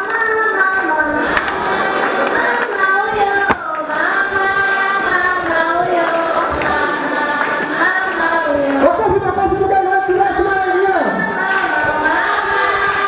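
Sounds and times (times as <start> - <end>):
voices singing slow song: 0.0 - 13.0.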